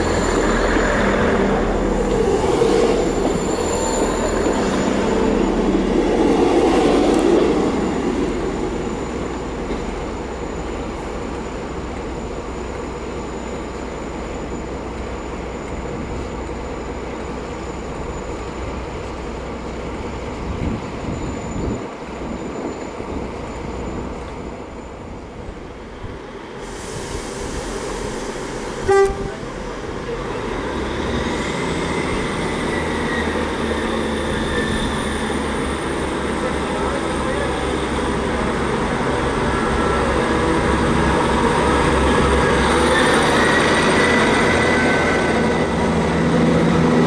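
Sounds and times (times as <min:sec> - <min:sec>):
diesel train engine running: 0:00.0 - 0:47.0
train horn toot: 0:28.8 - 0:29.6.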